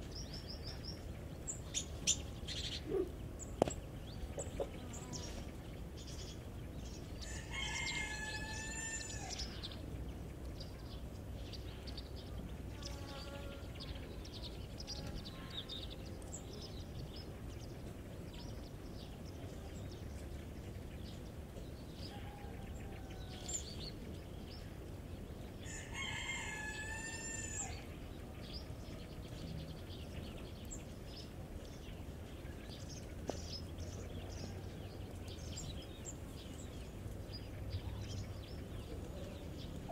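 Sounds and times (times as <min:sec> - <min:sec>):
rooster crowing: 0:07.2 - 0:09.5, 0:22.1 - 0:23.7, 0:25.6 - 0:27.9.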